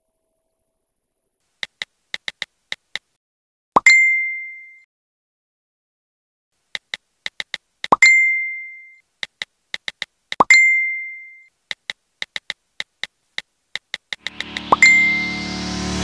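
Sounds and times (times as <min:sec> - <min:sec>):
keyboard tap clicks: 0:01.6 - 0:03.1, 0:06.7 - 0:08.0, 0:09.2 - 0:10.5, 0:11.7 - 0:14.8
upward swoop into a ding: 0:14.6 - 0:15.5.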